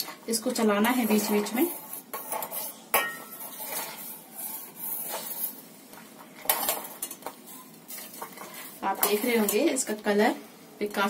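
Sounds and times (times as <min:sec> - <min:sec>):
spoon scraping metal bowl: 0:00.8 - 0:05.7, 0:06.4 - 0:09.8.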